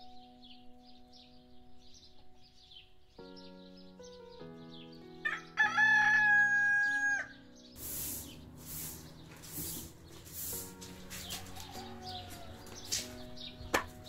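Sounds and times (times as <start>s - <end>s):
rooster crowing: 5.2s - 7.4s, 11.2s - 13.0s
broom sweeping tiled floor: 7.8s - 14.0s.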